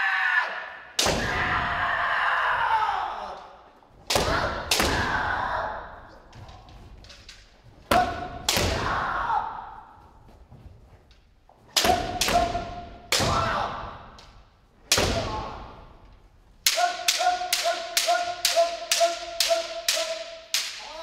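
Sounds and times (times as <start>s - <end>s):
bamboo swords cracking on armour: 7.2s - 8.9s
person shouting: 16.7s - 21.0s.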